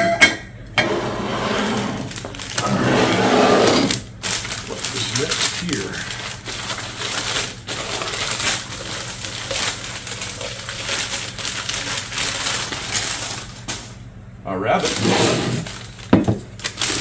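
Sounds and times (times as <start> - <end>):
newspaper crumpling and rustling: 2.0 - 2.8, 3.8 - 14.0, 14.8 - 17.0.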